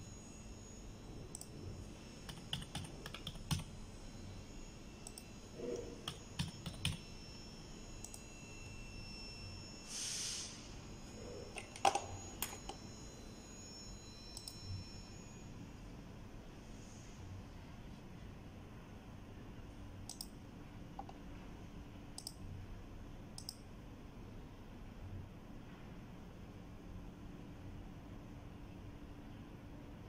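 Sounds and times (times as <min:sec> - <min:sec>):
keyboard typing: 0:02.2 - 0:03.8, 0:05.0 - 0:07.0, 0:11.5 - 0:12.8, 0:20.1 - 0:20.4
brief hiss: 0:09.9 - 0:10.7
sharp clicks: 0:20.1 - 0:20.4, 0:23.4 - 0:23.6.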